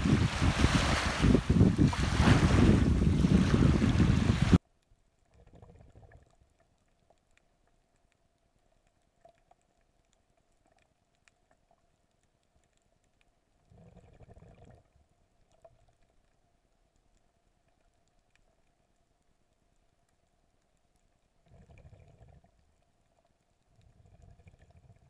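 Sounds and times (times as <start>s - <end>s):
low muffled underwater rushes: 0.0s - 4.6s
wind and surf on microphone: 0.0s - 4.6s.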